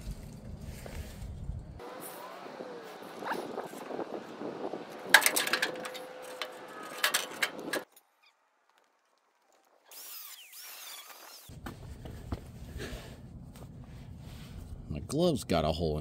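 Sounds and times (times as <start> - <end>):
metal scraping: 2.0 - 8.0
sheet metal clanking: 4.6 - 7.8.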